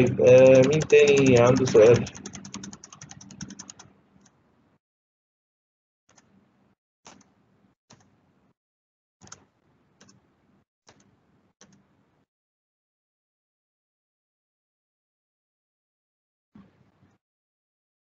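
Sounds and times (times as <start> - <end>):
faint computer clicks: 0.3 - 4.4, 9.2 - 10.2.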